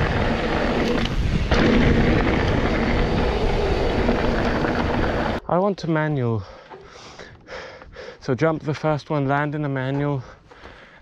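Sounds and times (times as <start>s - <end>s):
bike tyres rolling on dirt: 0.0s - 5.4s
wind buffeting microphone: 0.0s - 5.4s.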